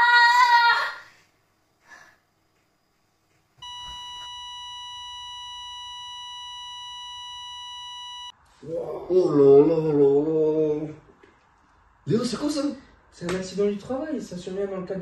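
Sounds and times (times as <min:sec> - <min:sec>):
steady electronic beep: 0:03.6 - 0:08.3.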